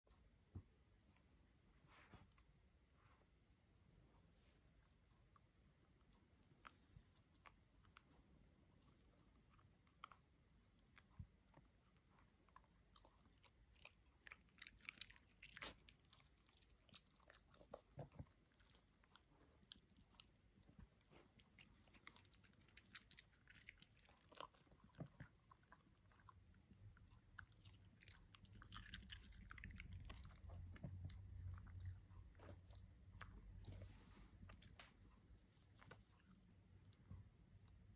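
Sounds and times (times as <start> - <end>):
dog chewing wet crunches: 10.8 - 36.4.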